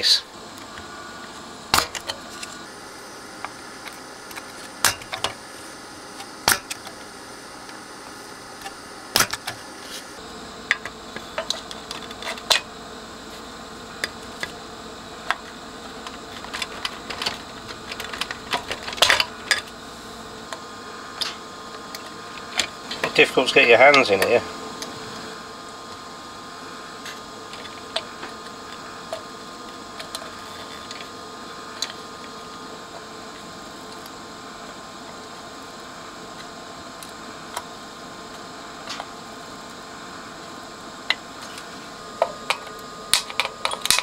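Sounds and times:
desoldering pump snapping: 0:00.5 - 0:02.6, 0:03.4 - 0:05.4, 0:06.0 - 0:10.0, 0:15.2 - 0:19.8, 0:41.1 - 0:44.0.

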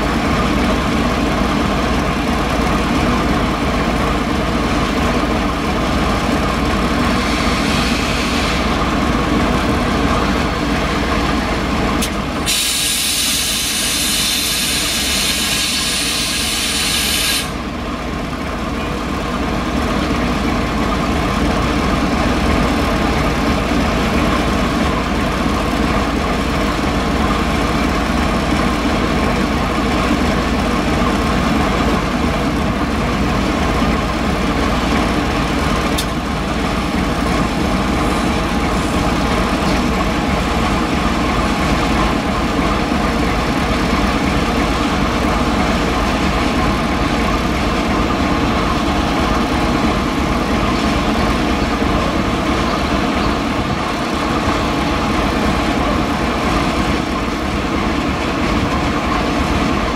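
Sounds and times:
diesel locomotive engine idling: 0:00.0 - 0:59.9
loud hiss of released air: 0:12.4 - 0:17.6.

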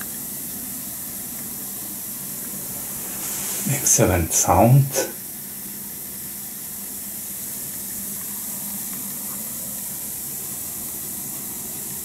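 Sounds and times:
effervescent tablet fizzing: 0:01.8 - 0:05.2.

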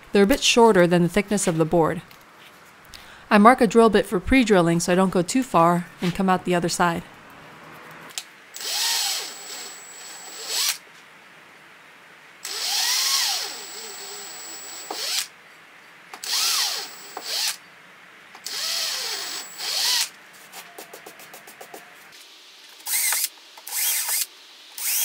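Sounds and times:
power drill boring into wood: 0:08.6 - 0:10.8, 0:12.4 - 0:15.3, 0:16.2 - 0:17.6, 0:18.4 - 0:20.1, 0:22.8 - 0:25.0.

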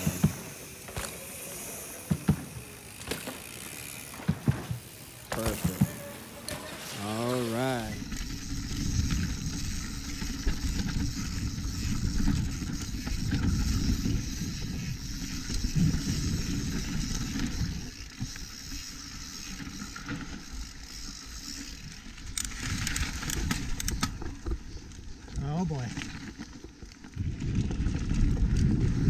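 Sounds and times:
bike rattling: 0:00.0 - 0:29.0
bike tyres rumbling on dirt: 0:00.0 - 0:29.0
wind on microphone: 0:27.2 - 0:29.0.

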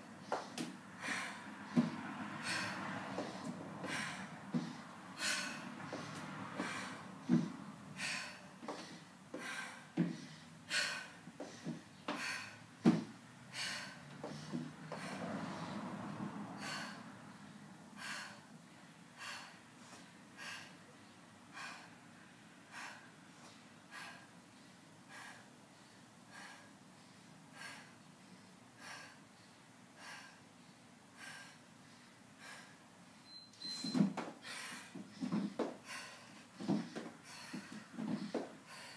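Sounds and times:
movement sounds: 0:33.8 - 0:38.9.

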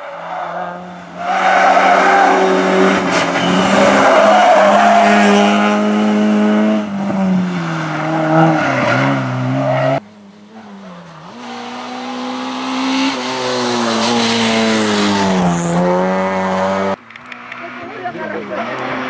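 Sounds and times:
rally car engine revving: 0:00.0 - 0:19.0
quieter engine accelerating: 0:05.0 - 0:19.0.

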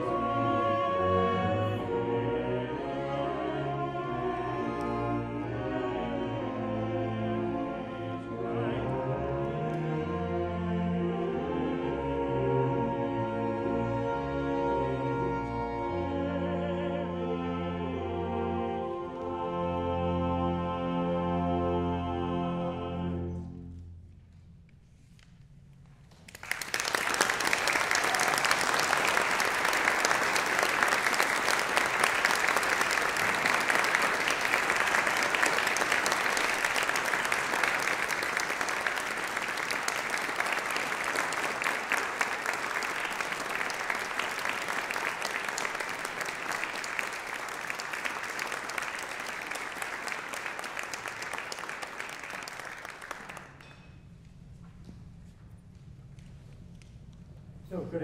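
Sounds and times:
audience applauding: 0:26.1 - 0:53.7.

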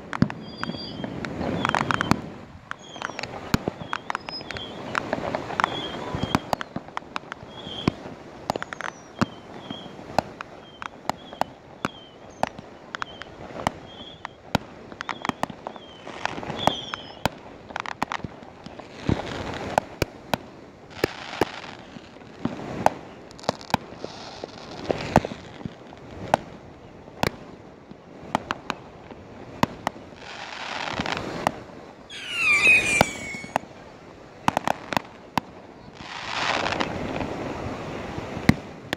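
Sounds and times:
fireworks crackling rush: 0:00.0 - 0:10.6, 0:14.5 - 0:26.3, 0:28.2 - 0:33.7
fireworks popping and banging: 0:00.0 - 0:26.6
high gliding firework whistle: 0:32.1 - 0:33.7.

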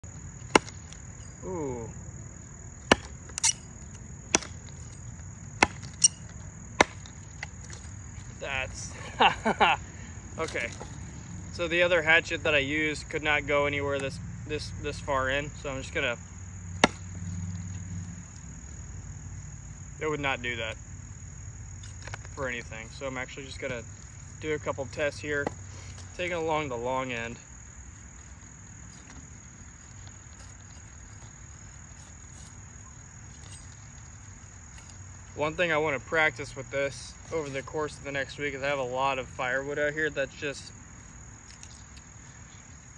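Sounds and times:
high-pitched insect trill: 0:00.0 - 0:42.9
high wood crack: 0:00.1 - 0:01.2, 0:02.8 - 0:07.9, 0:16.8 - 0:17.2
hatchet chopping wood: 0:00.4 - 0:01.0, 0:02.8 - 0:03.6, 0:04.3 - 0:04.7, 0:05.6 - 0:06.2, 0:06.8 - 0:07.5, 0:16.8 - 0:17.1.

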